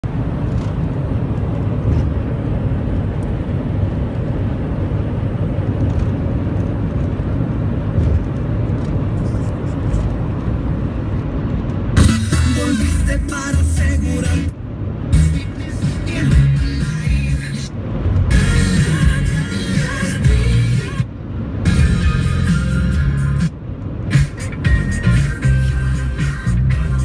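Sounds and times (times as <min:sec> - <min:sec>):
car road and engine rumble: 0:00.0 - 0:27.0
music: 0:12.0 - 0:14.5, 0:15.1 - 0:17.7, 0:18.3 - 0:21.1, 0:21.7 - 0:23.5, 0:24.1 - 0:27.0.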